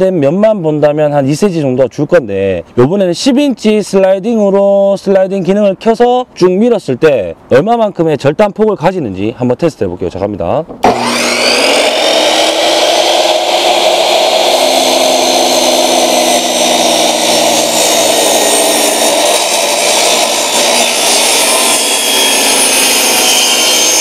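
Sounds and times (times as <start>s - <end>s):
miter saw cutting wood: 10.8s - 24.0s.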